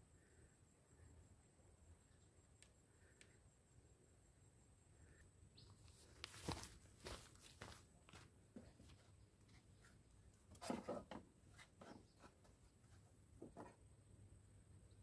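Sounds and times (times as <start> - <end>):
faint knocks and rustles: 8.5 - 13.8.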